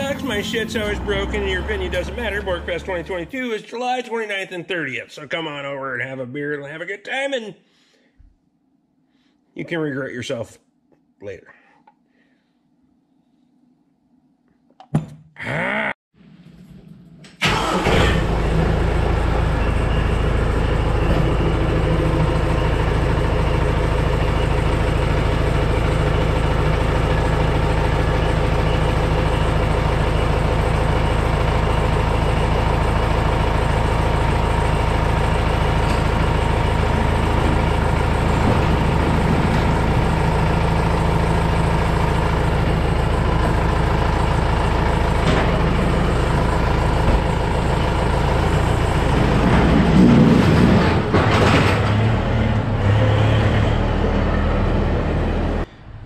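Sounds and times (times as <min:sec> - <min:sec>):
tractor diesel engine running: 0:00.0 - 0:03.5, 0:17.4 - 0:56.0.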